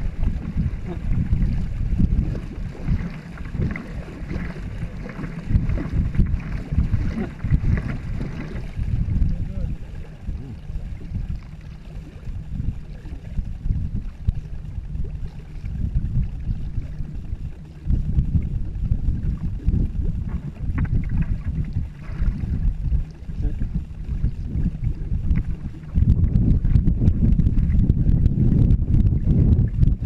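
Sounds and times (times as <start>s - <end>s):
paddle strokes: 0.0s - 12.2s, 19.3s - 26.8s
water wash: 0.0s - 30.0s
wind buffeting microphone: 0.0s - 30.0s.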